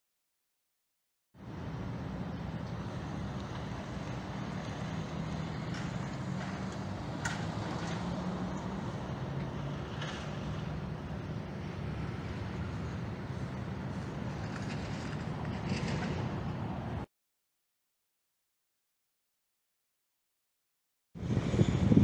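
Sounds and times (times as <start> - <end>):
traffic hum: 1.4 - 17.1.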